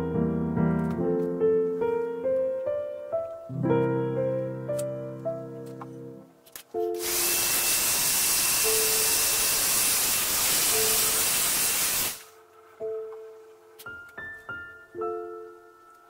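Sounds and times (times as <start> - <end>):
heat gun blowing air: 7.0 - 12.3.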